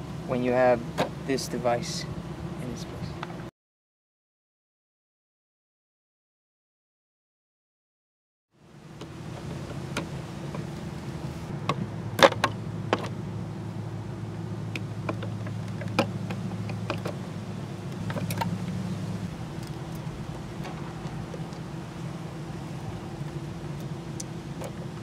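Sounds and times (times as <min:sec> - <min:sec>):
low machine hum: 0:00.0 - 0:03.5, 0:08.6 - 0:25.0.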